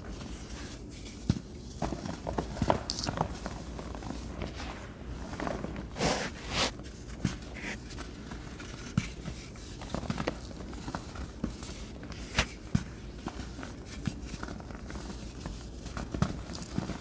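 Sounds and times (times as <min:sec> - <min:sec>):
chalk crumbling: 0:05.9 - 0:12.6
chalk lumps crunching and tapping: 0:06.0 - 0:17.0.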